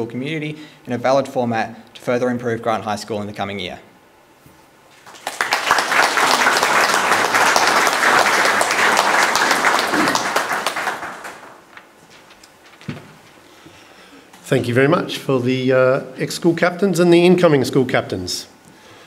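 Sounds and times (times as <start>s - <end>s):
audience applauding: 5.0s - 11.8s.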